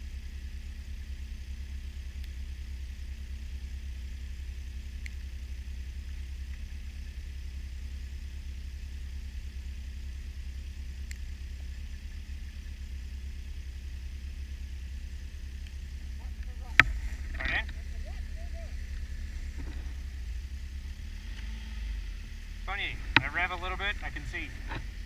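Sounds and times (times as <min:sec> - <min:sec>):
snowmobile engine idling: 0:00.0 - 0:25.0
faint clicks: 0:15.6 - 0:21.5, 0:22.8 - 0:25.0.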